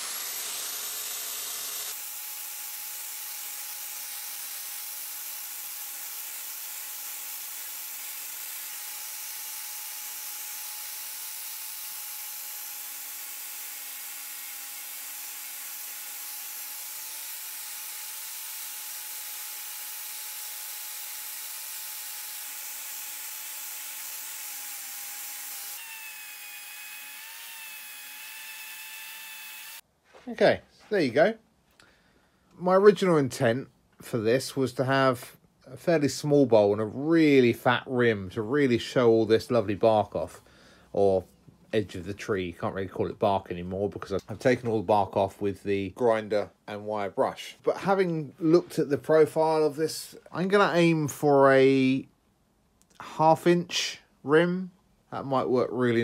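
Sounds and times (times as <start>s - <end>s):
angle grinder with wire brush: 0.0s - 29.8s
electric drill with wire brush: 0.0s - 29.8s.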